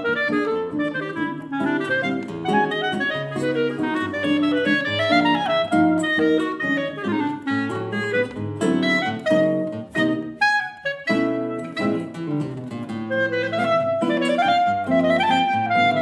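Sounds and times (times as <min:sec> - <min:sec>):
clarinet playing fast runs: 0:00.0 - 0:16.0
classical guitar chords: 0:00.0 - 0:16.0.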